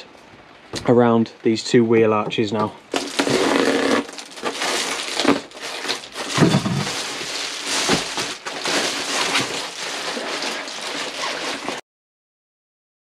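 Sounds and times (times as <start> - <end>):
foil insulation crinkling: 2.9 - 11.8.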